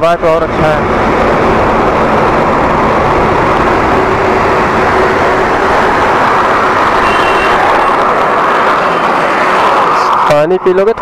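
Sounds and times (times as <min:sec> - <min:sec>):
motorcycle engine rumble: 0:00.0 - 0:09.3
wind and road noise: 0:00.0 - 0:11.0.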